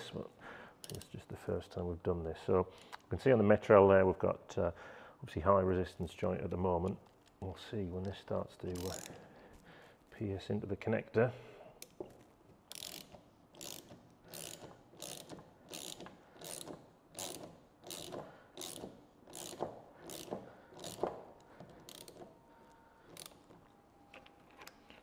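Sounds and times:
socket wrench ratcheting: 0.8 - 1.1, 8.7 - 9.2, 12.7 - 22.3, 23.1 - 23.6.

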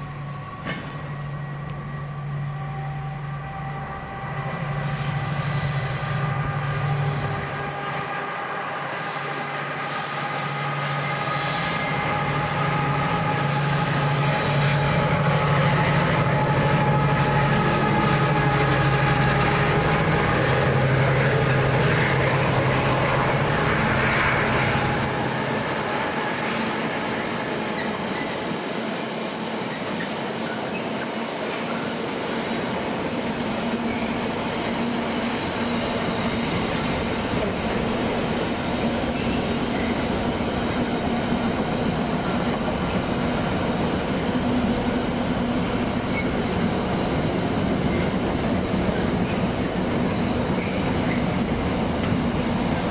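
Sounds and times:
diesel train engine hum: 0.0 - 52.9
wheel squeal: 5.0 - 7.4, 8.9 - 12.6.

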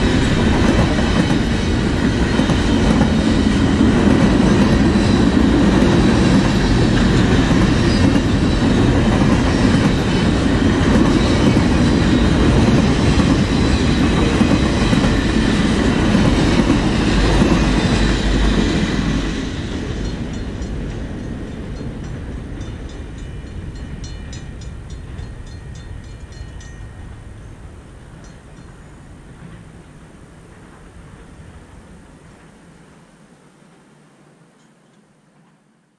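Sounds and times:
freight train wheels rumbling on rail: 0.0 - 32.9.

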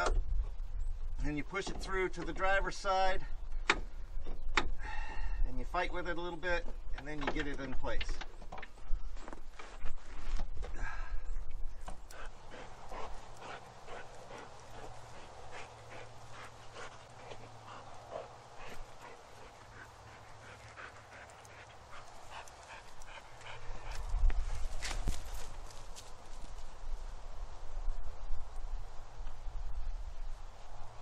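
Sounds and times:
dog panting: 12.0 - 24.2
footsteps on grass: 12.2 - 21.1, 21.8 - 26.8.

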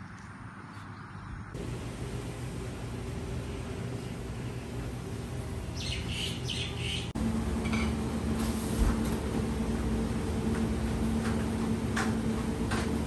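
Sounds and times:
steady low hum: 0.2 - 13.0
bird calling: 5.7 - 7.2.

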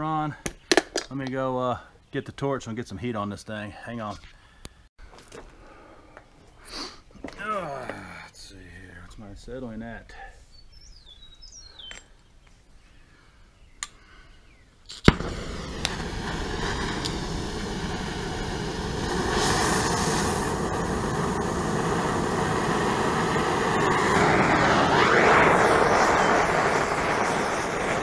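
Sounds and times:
gas torch rushing flame: 15.1 - 28.0.

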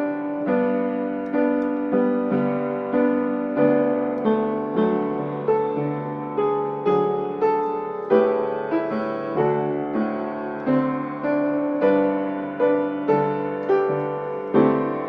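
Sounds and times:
slow gentle piano music: 0.0 - 15.0.

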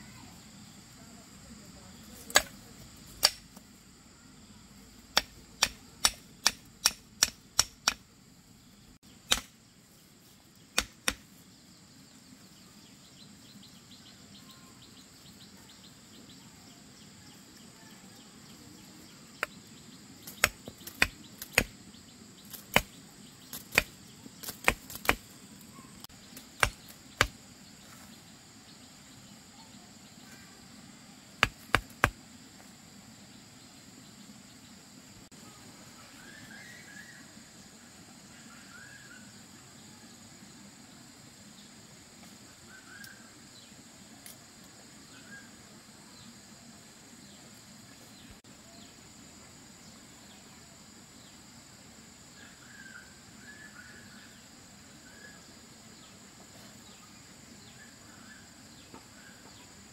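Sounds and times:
machete striking sticks: 2.3 - 2.6, 3.2 - 3.6, 5.1 - 8.1, 9.2 - 9.6, 10.7 - 11.3, 20.2 - 21.8, 22.5 - 25.3, 26.4 - 27.4, 31.4 - 32.2.

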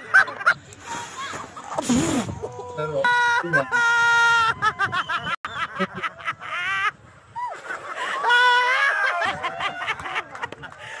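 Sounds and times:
laughter: 0.0 - 0.6, 2.4 - 11.0.

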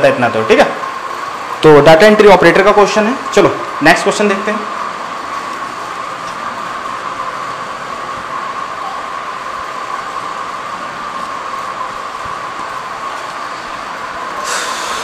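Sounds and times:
steady hissing background noise: 0.0 - 15.0.

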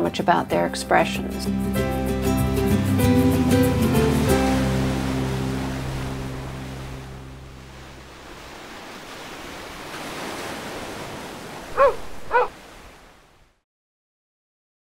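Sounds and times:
background music: 0.0 - 7.7
surf washing on beach: 3.6 - 13.6
dog barking: 11.7 - 12.6.

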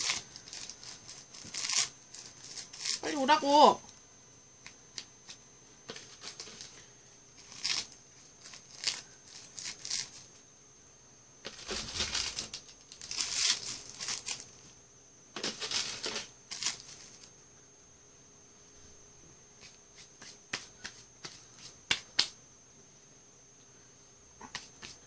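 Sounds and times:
dried seaweed sheets crinkling: 0.0 - 3.4, 5.9 - 10.3, 11.4 - 14.6, 15.4 - 17.3.

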